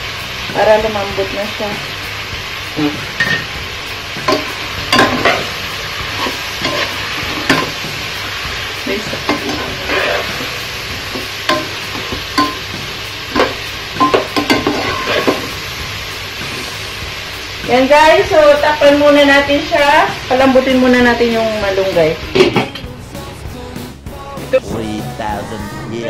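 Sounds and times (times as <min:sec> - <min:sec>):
frying sizzle: 0:00.0 - 0:26.0
metal spatula scraping a pot: 0:09.3 - 0:10.5, 0:13.4 - 0:15.5.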